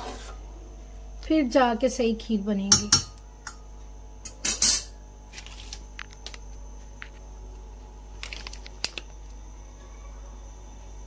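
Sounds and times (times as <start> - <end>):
metal spoon scraping pot: 0.0 - 0.4
steady low hum: 0.0 - 11.0.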